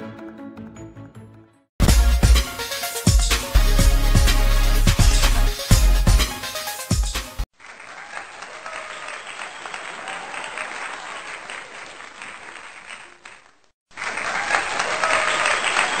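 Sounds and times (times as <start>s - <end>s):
crowd applause: 7.6s - 16.0s.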